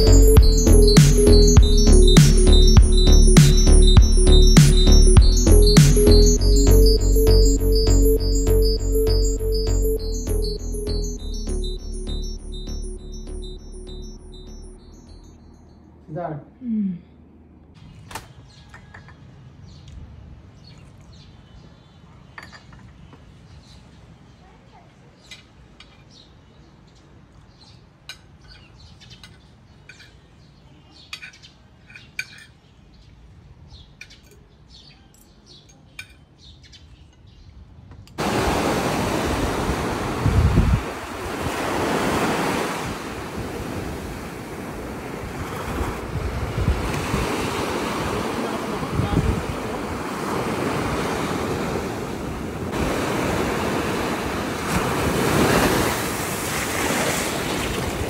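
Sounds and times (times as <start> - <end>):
ocean waves breaking on beach: 38.2 - 58.0
wind gusting on microphone: 38.2 - 58.0.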